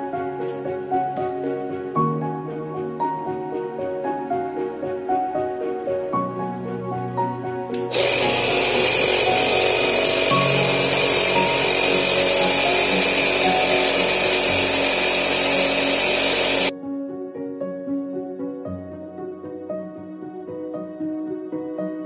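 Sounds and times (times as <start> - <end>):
tire inflator compressor running: 7.9 - 16.7.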